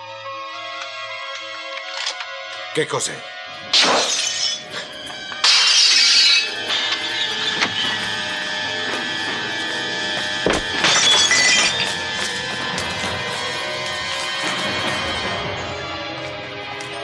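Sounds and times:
music: 0.0s - 17.0s
window glass shattering: 3.7s - 9.2s, 10.4s - 14.8s.

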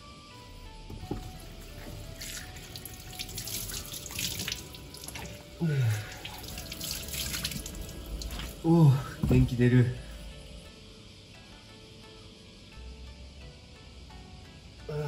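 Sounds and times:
tap running into a sink: 0.9s - 5.4s
hands splashing water: 2.2s - 5.4s, 6.1s - 8.6s
man groaning: 5.6s - 6.2s, 8.6s - 9.2s.

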